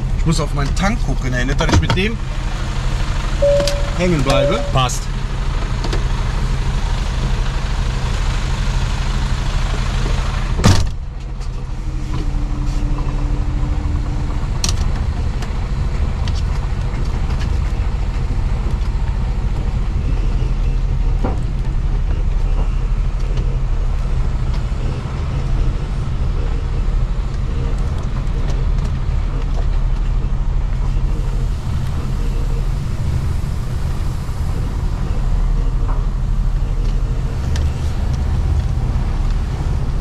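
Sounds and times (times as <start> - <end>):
truck diesel engine running: 0.0 - 40.0
hiss above engine: 31.0 - 40.0.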